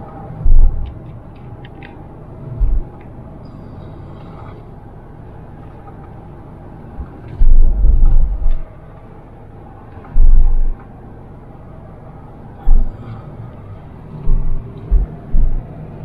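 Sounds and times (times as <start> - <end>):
car engine and road rumble: 0.0 - 16.0
heavy low thumps: 0.4 - 1.0, 2.5 - 3.0, 7.0 - 8.7, 10.1 - 10.8, 12.6 - 13.1, 14.2 - 15.8.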